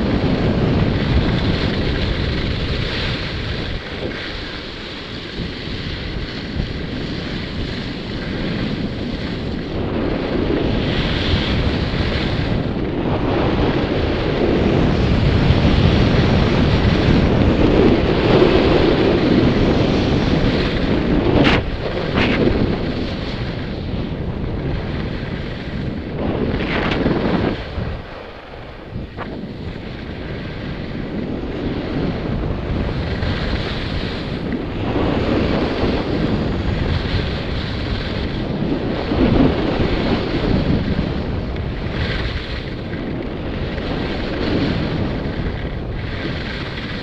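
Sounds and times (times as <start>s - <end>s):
wind rushing over microphone: 0.0s - 47.0s
ski edges scraping snow: 0.6s - 10.3s, 15.8s - 24.0s, 24.8s - 30.8s.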